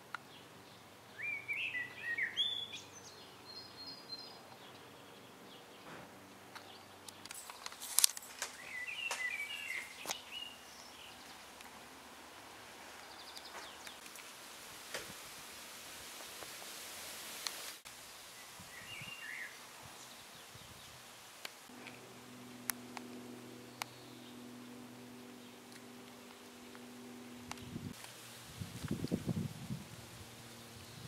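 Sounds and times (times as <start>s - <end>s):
faint outdoor background: 0.0s - 31.0s
bird trill: 1.2s - 4.5s, 8.5s - 11.2s
songbird warbling: 1.2s - 4.5s, 8.5s - 11.3s.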